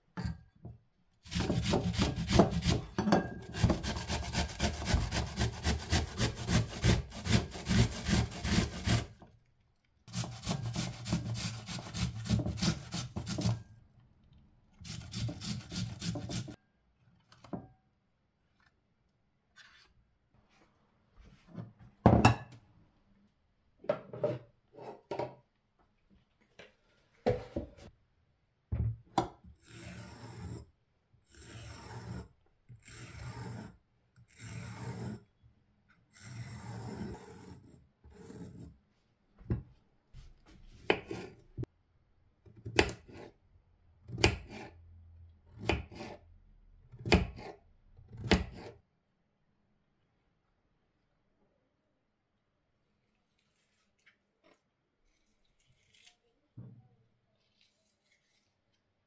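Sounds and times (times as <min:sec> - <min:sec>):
knife chopping on wooden board: 0:01.3 - 0:03.0, 0:42.6 - 0:43.3, 0:44.1 - 0:44.7, 0:45.6 - 0:46.2, 0:47.0 - 0:47.5, 0:48.1 - 0:48.7
fork scraping zucchini: 0:57.4 - 0:58.8.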